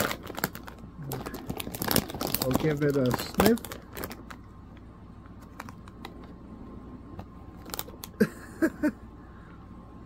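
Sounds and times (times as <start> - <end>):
foil bag crinkling: 0.0 - 4.4, 7.5 - 8.2.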